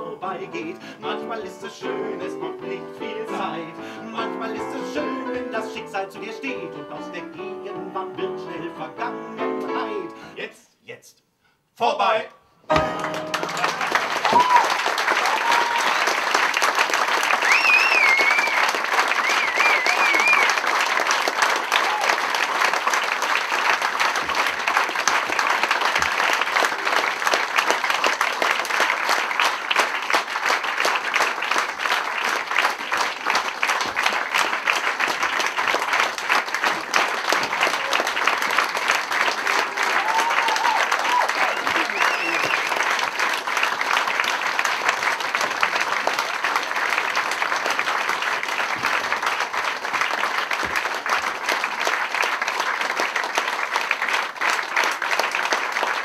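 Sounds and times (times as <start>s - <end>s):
high cheering: 12.7s - 44.4s
audience applauding: 12.7s - 56.0s.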